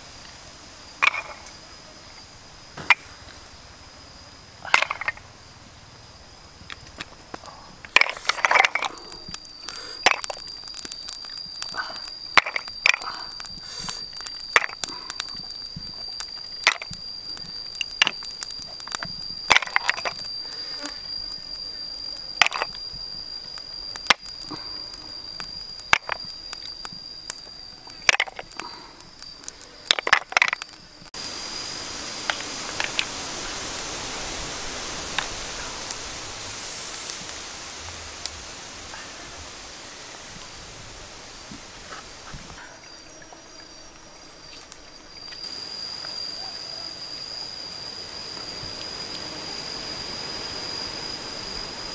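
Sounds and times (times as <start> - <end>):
steady high whine: 0.0 - 51.9
snail shells clicking and knocking: 4.6 - 5.3, 6.6 - 31.2
stream rushing: 31.2 - 42.3.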